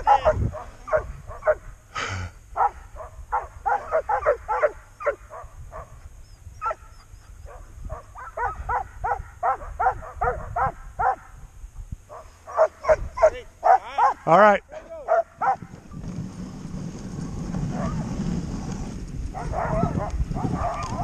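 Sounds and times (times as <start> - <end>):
dogs barking and yipping: 0.0 - 1.7, 2.6 - 11.3, 12.1 - 14.3, 15.0 - 15.7, 17.7 - 18.2, 19.3 - 21.0.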